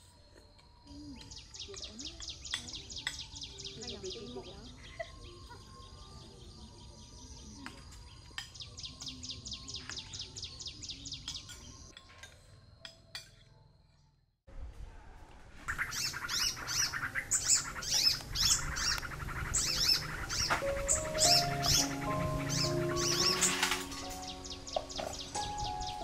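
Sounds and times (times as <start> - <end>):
birds chirping: 0.8 - 12.0, 15.7 - 26.0
chorus of bird calls: 15.7 - 26.0.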